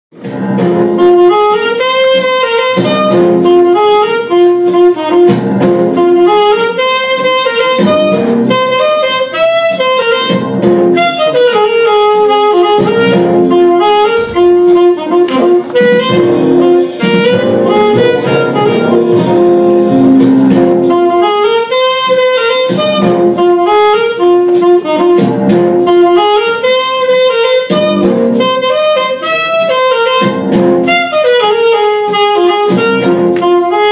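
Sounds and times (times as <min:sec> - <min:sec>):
alto saxophone melody: 0:00.2 - 0:33.9.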